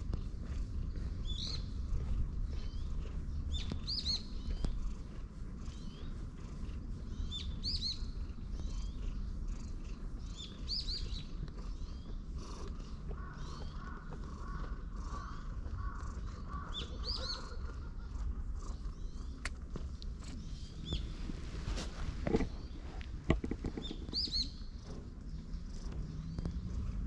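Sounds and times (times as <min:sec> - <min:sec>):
cat purring: 0:00.0 - 0:27.0
small bird chirping: 0:00.1 - 0:27.0.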